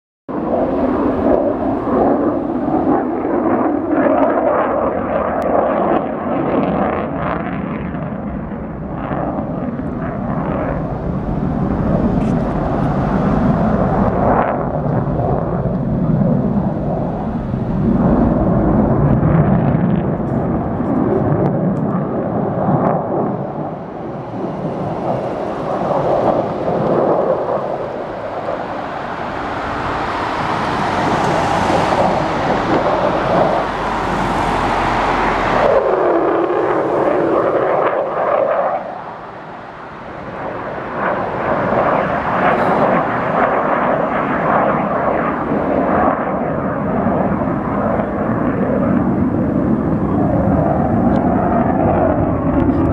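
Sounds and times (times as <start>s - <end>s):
airplane flying over: 0.3s - 52.9s.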